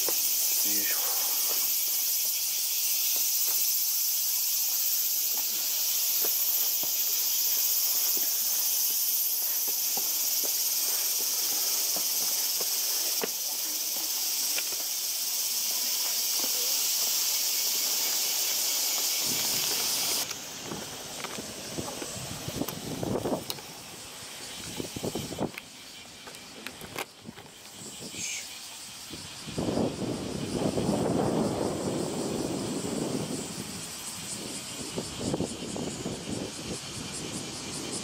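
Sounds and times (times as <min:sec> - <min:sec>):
footsteps on stone steps: 0:00.0 - 0:27.8
insects chorus: 0:00.0 - 0:38.0.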